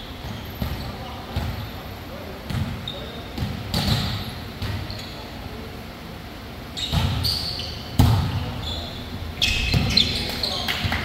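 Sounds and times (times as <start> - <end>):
sneakers squeaking on court: 2.5 - 5.3, 6.8 - 11.0.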